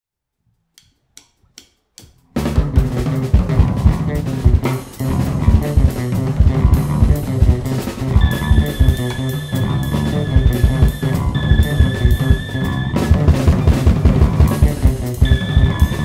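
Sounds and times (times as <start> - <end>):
rock band groove: 2.4 - 16.0
count-in clicks: 6.8 - 16.0.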